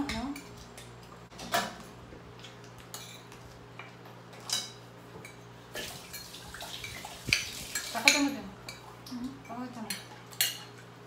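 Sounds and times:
cutlery clinking on plates: 9.9 - 10.9.

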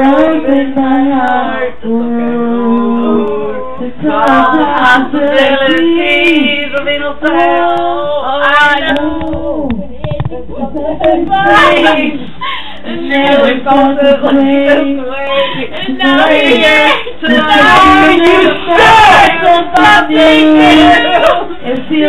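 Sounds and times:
group of voices singing: 0.0 - 22.0.

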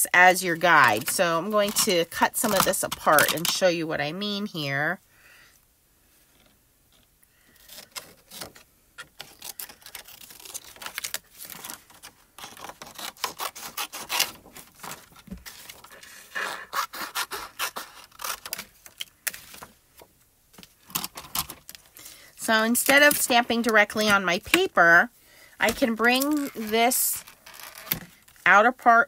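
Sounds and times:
scissors snipping cardstock: 0.8 - 3.6
paper sheet rustling: 7.7 - 22.0.

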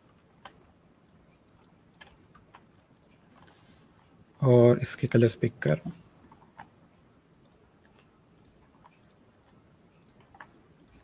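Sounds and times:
computer mouse clicks: 0.1 - 3.6, 7.4 - 11.0.

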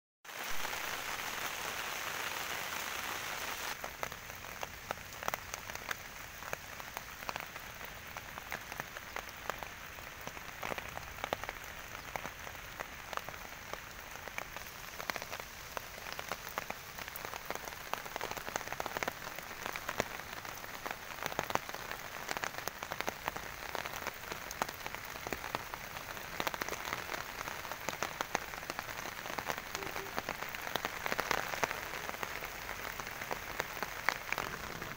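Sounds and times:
steady rain hiss: 0.3 - 34.9
raindrops tapping close by: 3.6 - 34.9.

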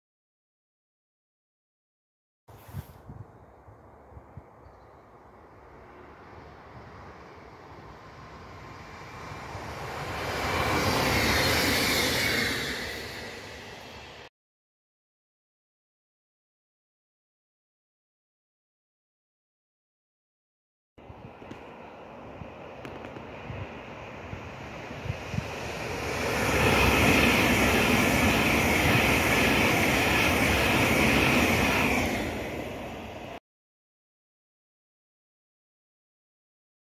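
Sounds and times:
train passing by: 3.6 - 14.3, 21.0 - 33.4.

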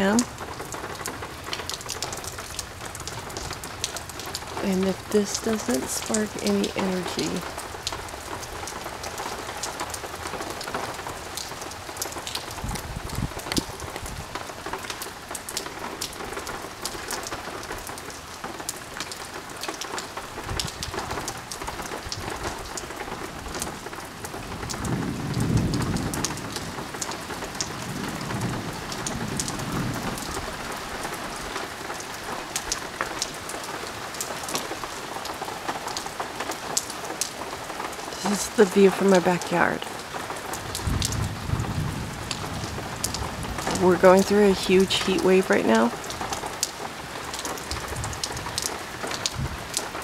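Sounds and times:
heavy rain: 0.0 - 50.0
raindrops ticking close by: 0.0 - 50.0
thunder rumbling: 12.4 - 14.4, 23.2 - 31.4, 40.6 - 46.5.

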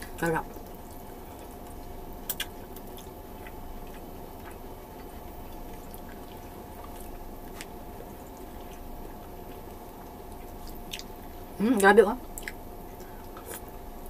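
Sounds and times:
person chewing: 0.0 - 11.4, 12.3 - 13.8
background hum: 0.0 - 14.0.

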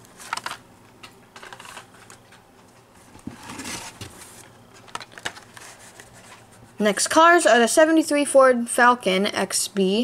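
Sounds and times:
plastic and card rustling: 0.0 - 0.6, 1.4 - 2.4, 3.1 - 6.6.

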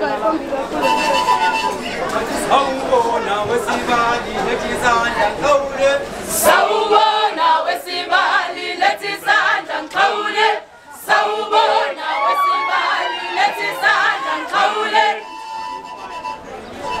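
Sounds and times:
women singing and chanting: 5.0 - 15.3.

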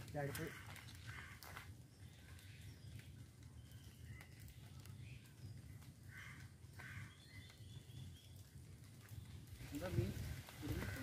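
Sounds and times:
faint bird chirps: 0.5 - 8.6.

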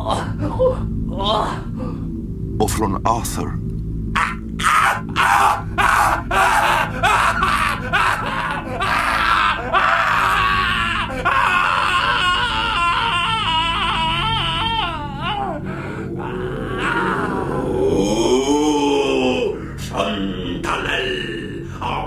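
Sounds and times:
man crying out in agony: 4.2 - 19.5.

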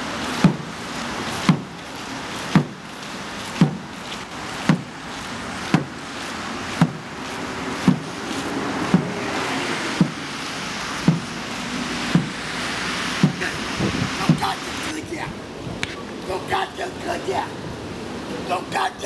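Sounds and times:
drum beating low booms: 3.6 - 3.9, 8.8 - 9.2, 11.0 - 11.5, 12.1 - 12.4.

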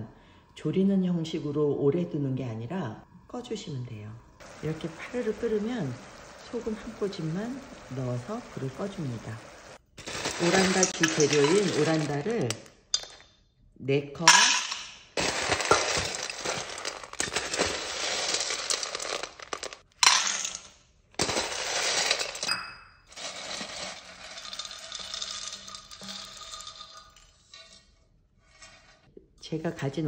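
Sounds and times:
dough pellets rattling on steel: 4.4 - 9.4, 10.0 - 13.1, 14.3 - 22.5, 23.1 - 28.9.

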